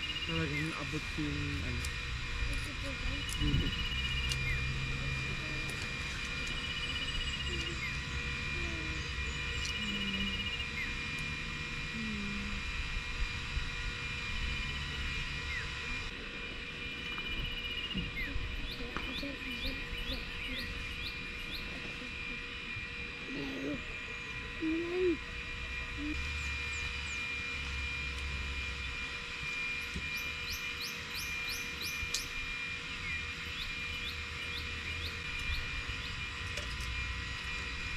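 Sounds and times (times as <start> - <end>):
high-pitched drone: 0.0 - 37.9
bird chirps: 2.6 - 4.8, 17.0 - 22.0, 30.1 - 32.4.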